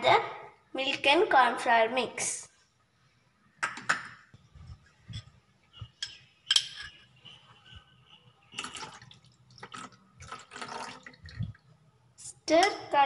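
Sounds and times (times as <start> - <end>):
kitchenware clinking on saucepan: 6.0 - 7.0.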